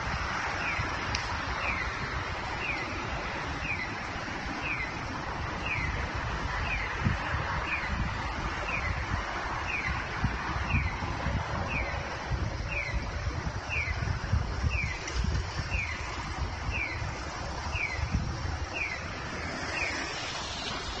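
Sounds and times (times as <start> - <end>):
traffic rumble: 0.0 - 21.0
wind on microphone: 0.0 - 21.0
crossing signal bird-call chirps: 2.6 - 5.0, 11.6 - 12.0, 13.7 - 14.1, 16.7 - 19.1.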